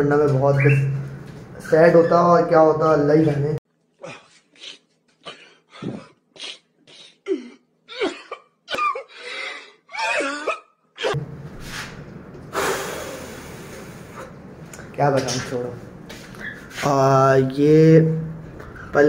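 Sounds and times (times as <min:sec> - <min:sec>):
man crying and sobbing: 0:04.0 - 0:11.2.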